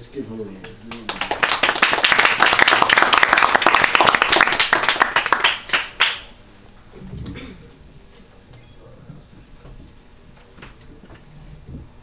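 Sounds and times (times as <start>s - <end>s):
audience applauding: 0.9s - 6.3s.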